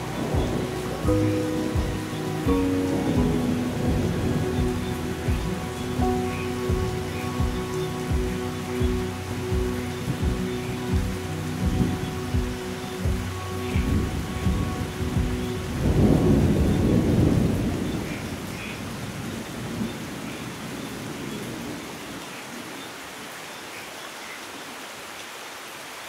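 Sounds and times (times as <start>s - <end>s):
thunder rumbling: 0.0s - 20.1s
steady rain falling: 0.0s - 26.0s.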